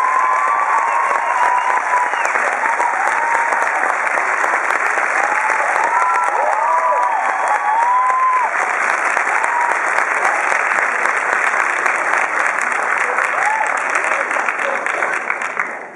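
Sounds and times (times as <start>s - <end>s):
people whooping: 0.0s - 3.9s, 5.1s - 8.7s, 9.3s - 10.0s, 13.0s - 14.9s
audience applauding: 0.0s - 15.9s.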